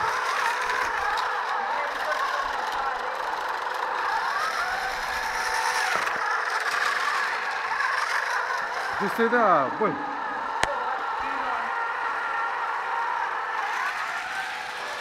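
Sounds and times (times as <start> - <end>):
drill motor whirring: 0.0 - 15.0.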